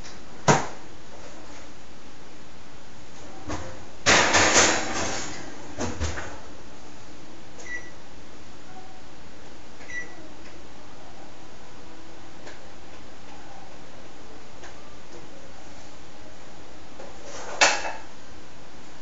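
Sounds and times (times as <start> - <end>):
kitchenware clattering: 3.5 - 6.4, 17.2 - 18.1.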